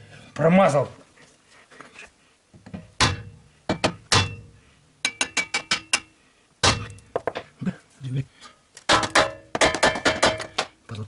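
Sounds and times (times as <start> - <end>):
hammer striking steel: 3.0 - 7.0, 8.9 - 10.7.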